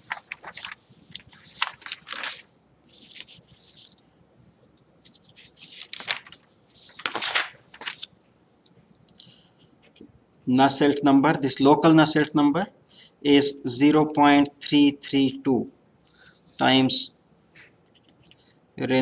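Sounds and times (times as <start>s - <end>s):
paper rustling: 0.0s - 4.0s, 4.6s - 8.1s.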